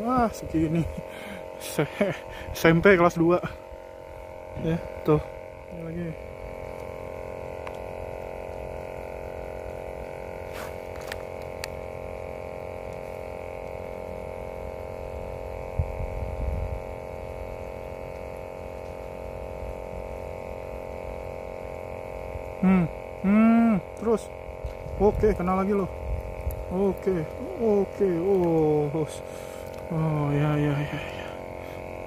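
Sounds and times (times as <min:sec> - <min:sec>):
steady multi-tone hum: 0:00.0 - 0:32.0.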